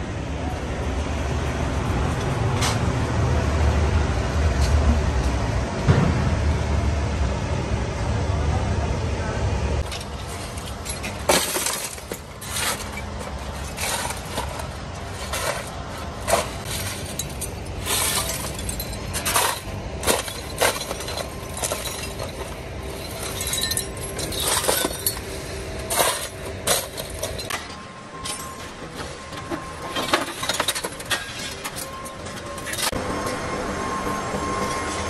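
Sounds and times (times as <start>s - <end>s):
scrap iron clanking into wheelbarrow: 9.8s - 33.0s.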